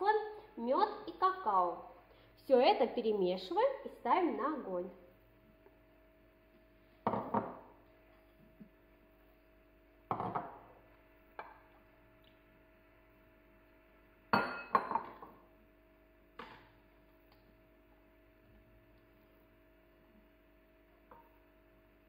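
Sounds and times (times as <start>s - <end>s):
ceramic bowls clinking on saucepan: 14.4s - 15.3s.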